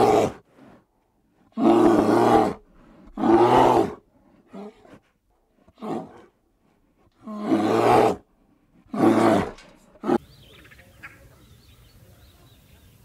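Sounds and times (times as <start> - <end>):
big cat roaring: 0.0 - 0.4, 1.5 - 5.0, 5.7 - 6.4, 7.2 - 10.2
faint bird chirps: 10.2 - 13.0.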